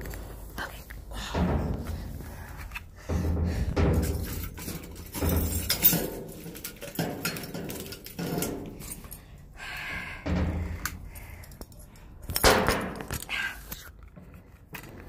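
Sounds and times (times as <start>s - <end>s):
knocks and thuds in metal dumpster: 1.2s - 8.8s, 10.0s - 11.1s.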